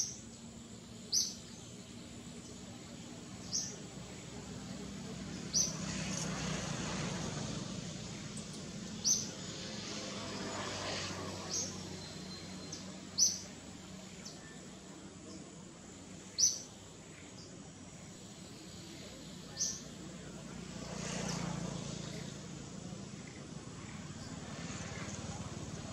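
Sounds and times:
bird chirping: 0.0s - 3.9s, 8.1s - 9.9s, 11.4s - 15.5s, 16.3s - 17.6s, 18.4s - 20.0s
steady background hum: 0.0s - 25.9s.

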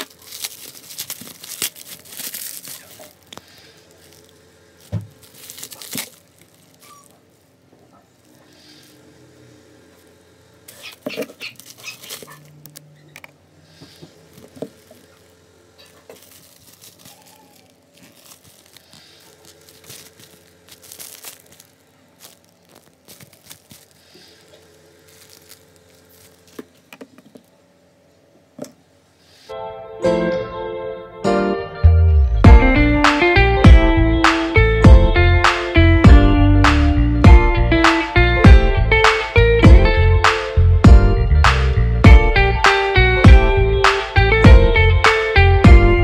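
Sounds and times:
plastic packaging crinkling: 0.0s - 9.1s, 10.0s - 13.3s, 13.9s - 27.6s.

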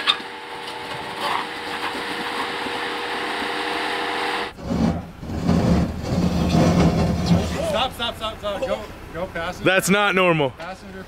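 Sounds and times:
tyres grinding on rock: 0.0s - 7.8s.

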